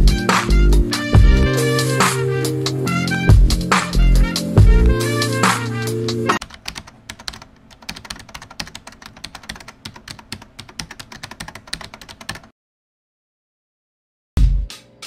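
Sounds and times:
computer keyboard key clicks: 6.4 - 12.5.

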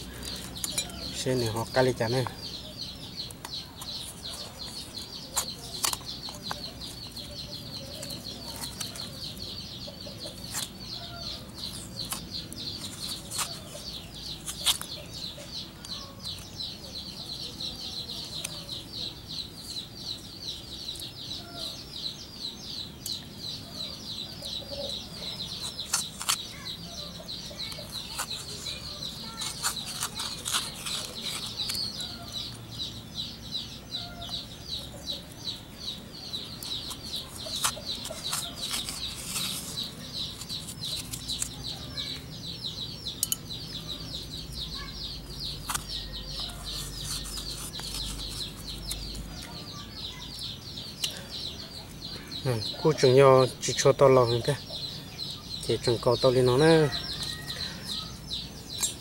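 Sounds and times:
spoon scraping coconut meat: 0.2 - 2.0, 3.2 - 16.6, 25.5 - 32.8, 36.5 - 42.3, 43.0 - 49.6, 58.6 - 59.0.

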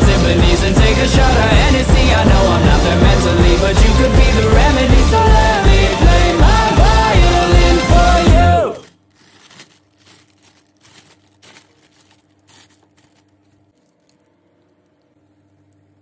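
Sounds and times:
faint steady hum: 8.8 - 16.0
plastic bag crinkling: 8.8 - 16.0.

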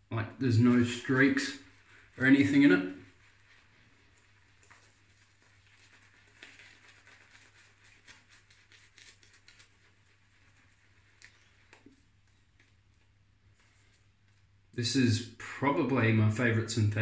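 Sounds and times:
shaving brush crackling and swishing: 0.7 - 14.2.

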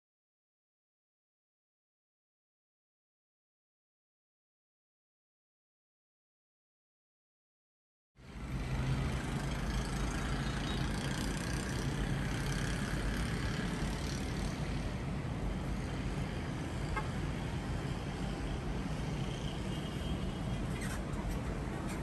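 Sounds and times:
distant road traffic: 8.2 - 22.0.

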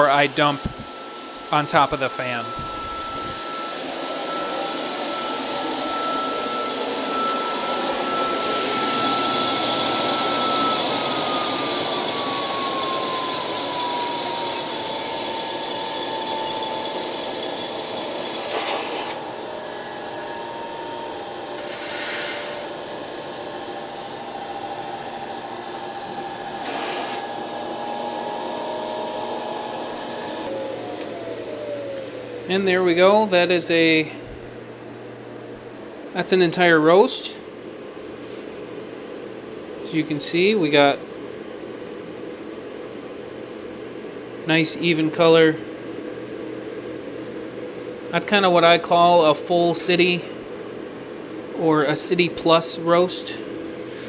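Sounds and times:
blower rushing air with whine: 0.0 - 54.0.

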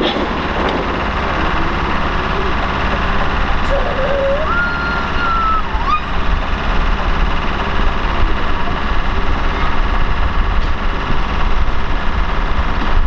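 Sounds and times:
diesel railcar engines rumbling: 0.0 - 13.0
thin whistling tone: 3.6 - 6.1.

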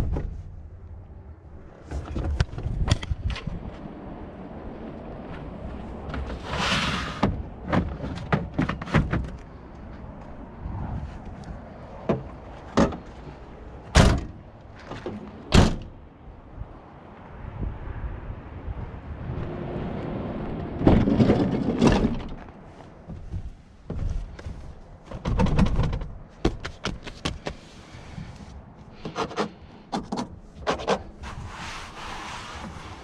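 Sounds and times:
hand brushing headliner: 31.2 - 33.0.

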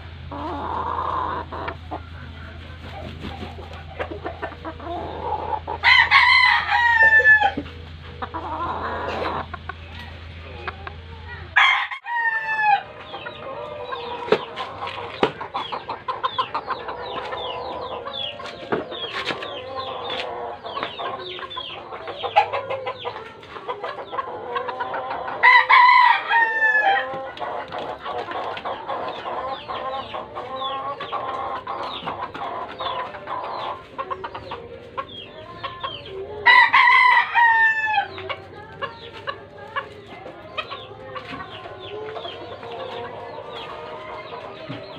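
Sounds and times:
chickens clucking: 0.0 - 44.9
roosters crowing: 0.0 - 44.9.

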